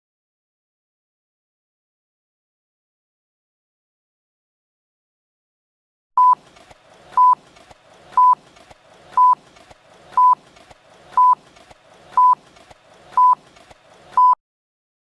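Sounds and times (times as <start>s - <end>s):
countdown beeps: 6.2s - 6.4s, 7.2s - 7.4s, 8.2s - 8.4s, 9.2s - 9.4s, 10.2s - 10.4s, 11.2s - 11.4s, 12.2s - 12.4s, 13.2s - 13.4s, 14.2s - 14.4s.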